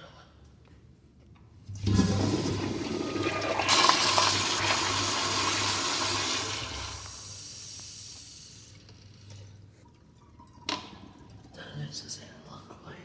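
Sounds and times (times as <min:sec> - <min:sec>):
toilet flushing: 0:01.7 - 0:08.8.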